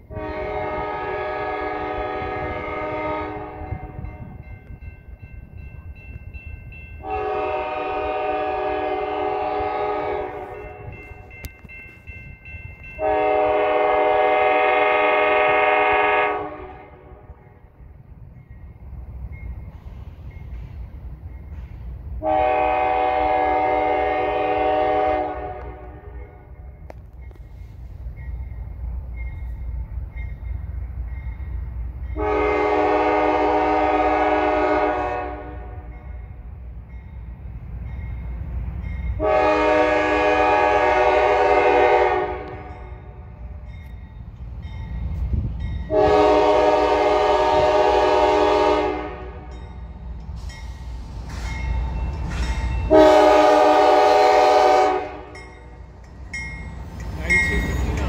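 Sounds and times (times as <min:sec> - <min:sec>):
locomotive horn blasts: 0:00.0 - 0:04.4, 0:07.0 - 0:11.2, 0:13.0 - 0:17.4, 0:22.2 - 0:26.6, 0:32.2 - 0:36.0, 0:39.2 - 0:43.2, 0:45.8 - 0:49.6, 0:52.9 - 0:55.4
locomotive engine rumble: 0:00.0 - 0:58.0
crossing bell dinging: 0:03.3 - 0:07.9, 0:09.9 - 0:14.3, 0:26.2 - 0:33.4, 0:35.6 - 0:40.8, 0:42.3 - 0:46.8, 0:49.1 - 0:53.6, 0:54.4 - 0:58.0.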